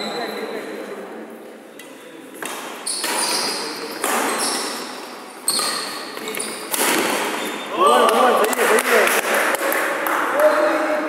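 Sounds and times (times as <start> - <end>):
sneakers squeaking on wooden floor: 1.7 - 8.3
rackets striking shuttlecock: 5.5 - 9.9.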